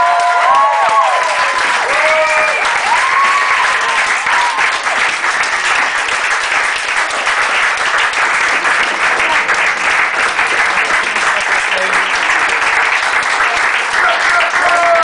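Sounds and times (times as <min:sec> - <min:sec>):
whoops and cheering: 0:00.0 - 0:05.0
audience applauding: 0:00.0 - 0:15.0.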